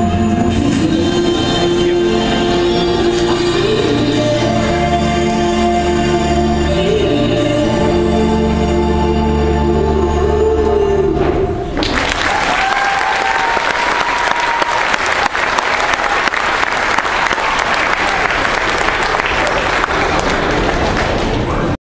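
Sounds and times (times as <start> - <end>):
pop song: 0.0 - 11.7
audience applause: 11.8 - 21.8
voices cheering: 11.9 - 21.0.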